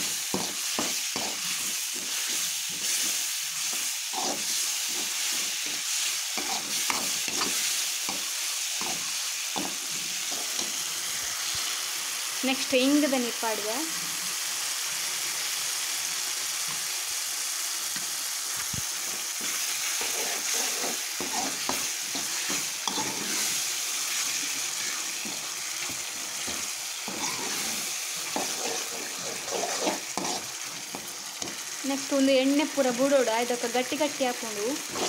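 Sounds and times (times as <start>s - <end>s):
masala sizzling and bubbling: 0.0s - 35.0s
spoon scraping a pan: 0.1s - 10.8s, 19.1s - 31.6s.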